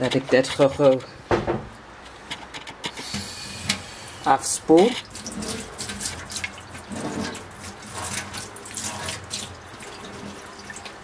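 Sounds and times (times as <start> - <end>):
tap water running into sink: 4.8 - 11.0.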